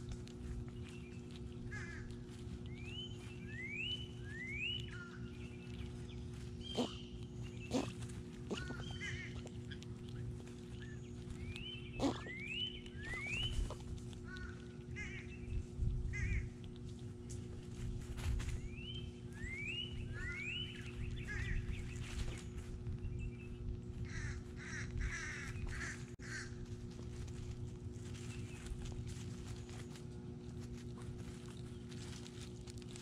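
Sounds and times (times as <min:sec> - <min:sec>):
steady low hum: 0:00.0 - 0:33.0
birds singing and calling: 0:00.4 - 0:16.6, 0:18.4 - 0:26.1.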